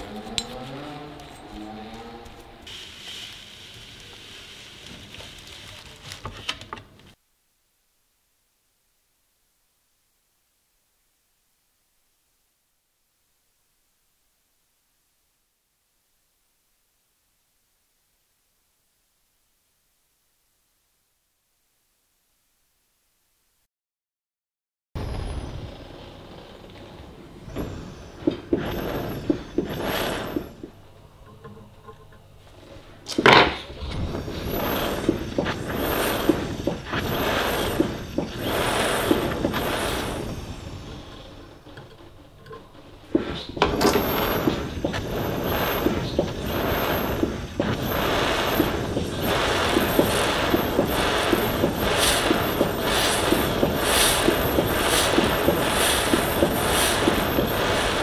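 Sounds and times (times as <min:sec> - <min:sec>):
gas torch hissing: 0:00.0 - 0:05.8, 0:25.0 - 0:31.8, 0:32.4 - 0:58.0
torch ignition click: 0:43.1 - 0:58.0.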